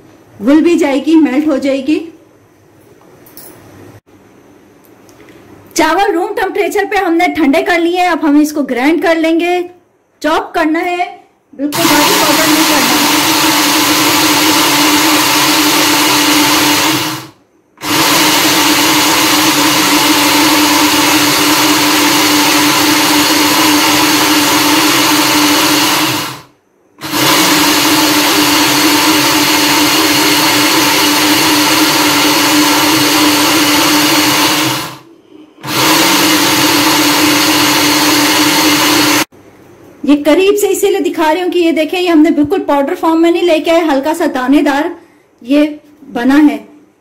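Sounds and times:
blender grinding dry rice: 0:11.8 - 0:39.3.

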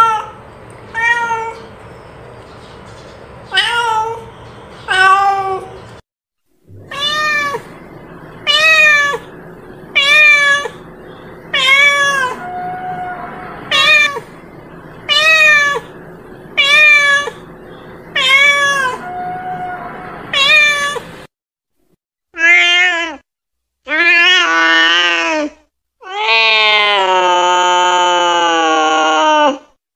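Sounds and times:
cat meowing: 0:01.0 - 0:01.7, 0:03.5 - 0:04.3, 0:06.7 - 0:07.8, 0:08.4 - 0:10.8, 0:11.5 - 0:14.4, 0:15.1 - 0:16.0, 0:16.6 - 0:17.5, 0:18.1 - 0:21.2, 0:22.4 - 0:23.2, 0:23.9 - 0:27.4.

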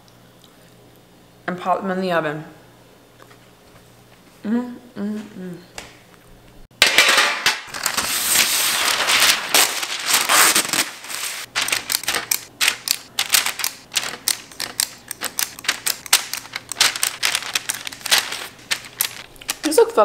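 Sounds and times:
parchment paper crinkling: 0:07.7 - 0:20.0
cookie scoop clicking and scraping: 0:11.7 - 0:19.6.

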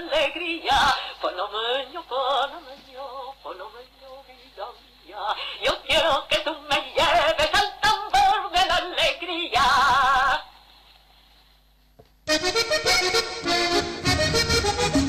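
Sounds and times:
music: 0:12.3 - 0:15.0.

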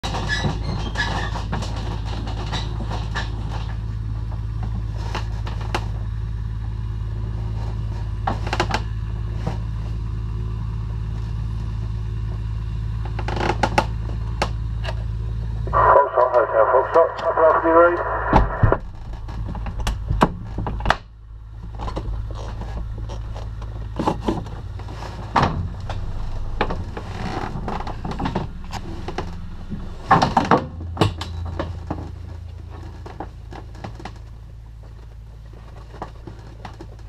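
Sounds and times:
plane engine hum: 0:08.2 - 0:37.0.

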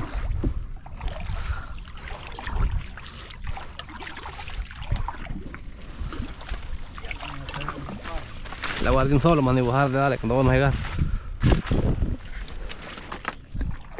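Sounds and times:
water sounds: 0:00.0 - 0:11.2, 0:12.2 - 0:13.9
leaves scraping along canoe hull: 0:00.0 - 0:13.9
small crackles: 0:06.2 - 0:13.7.

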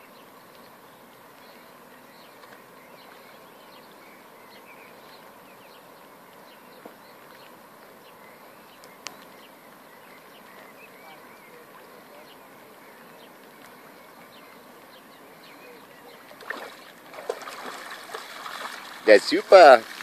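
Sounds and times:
faint bird chirps: 0:00.0 - 0:19.0
steady outdoor hiss: 0:00.0 - 0:20.0.

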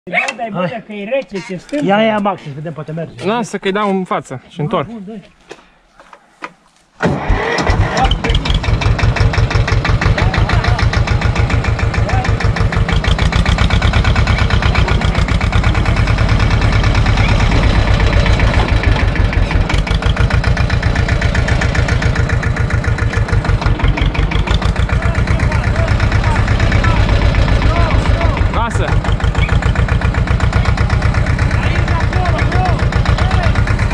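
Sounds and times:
tractor diesel engine running: 0:07.1 - 0:33.9.

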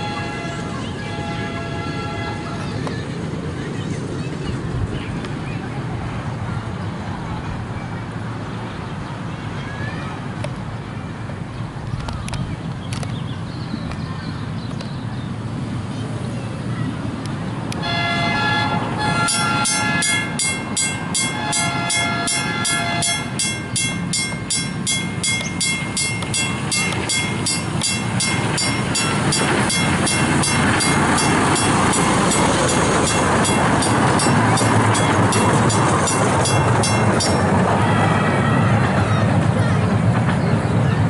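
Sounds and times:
train horn blasts: 0:00.0 - 0:02.7, 0:17.8 - 0:37.8
train rumble: 0:00.0 - 0:41.0
level-crossing bell ringing: 0:18.1 - 0:37.8.

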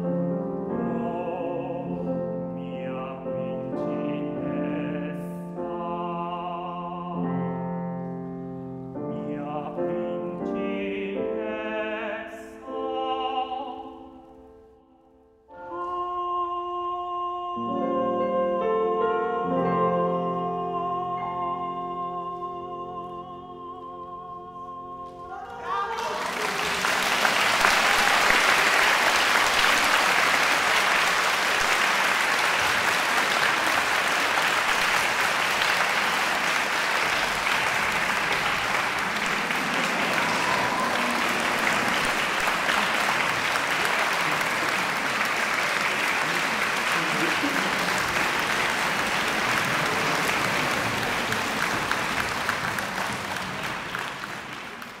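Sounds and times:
audience applauding: 0:25.4 - 0:55.0.

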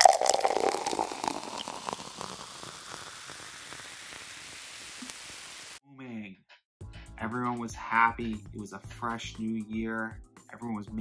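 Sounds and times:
crackling fizzing hiss: 0:00.0 - 0:05.8.

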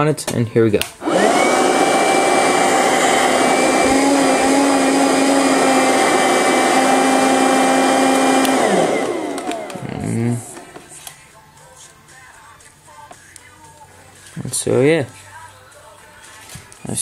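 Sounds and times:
vacuum motor whining: 0:01.0 - 0:11.0.

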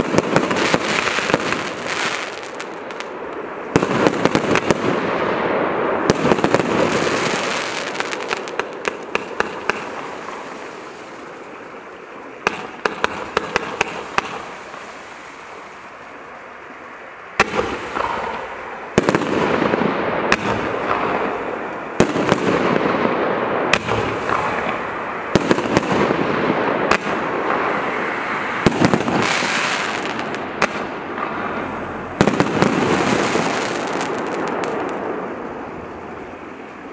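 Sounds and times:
firework crackling: 0:00.0 - 0:36.9
firework launch reports: 0:17.4 - 0:31.6.

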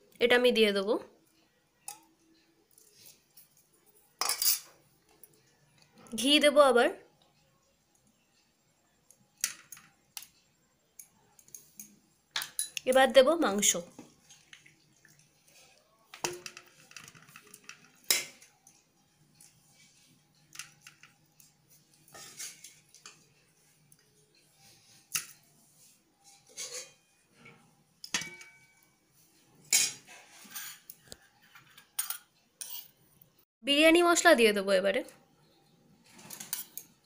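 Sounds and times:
metal spoon clinking on pot: 0:04.2 - 0:04.7, 0:11.0 - 0:13.0, 0:16.2 - 0:18.6, 0:28.0 - 0:28.9, 0:29.7 - 0:31.0, 0:31.8 - 0:32.9.

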